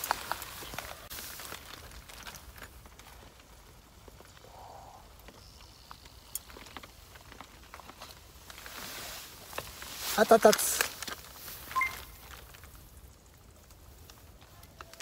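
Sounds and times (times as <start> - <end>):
soft rustle: 0.0 - 15.0
light clicks and taps of cooking gear: 5.1 - 8.7.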